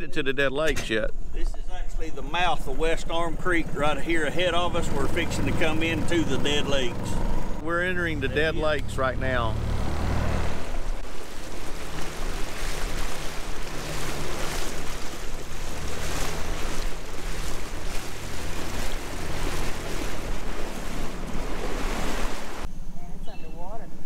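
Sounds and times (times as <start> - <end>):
water rushing along hull: 2.0 - 22.7
outboard motor running: 2.2 - 22.7
wind buffeting microphone: 10.1 - 22.7.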